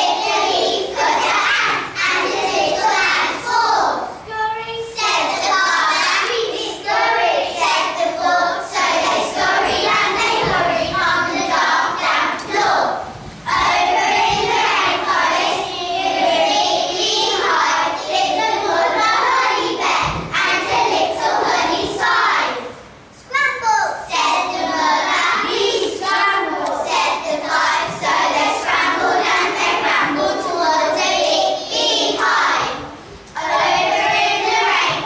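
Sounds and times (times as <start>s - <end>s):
young children singing: 0.0s - 23.3s, 23.9s - 35.0s.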